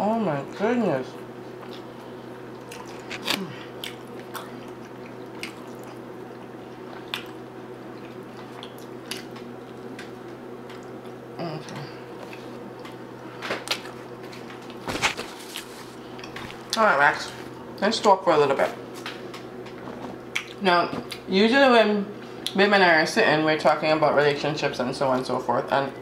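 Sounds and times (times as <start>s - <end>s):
steady background hum: 0.0s - 26.0s
person chewing food: 1.5s - 17.5s, 19.5s - 21.3s
wet mouth clicks and smacks: 20.3s - 21.2s.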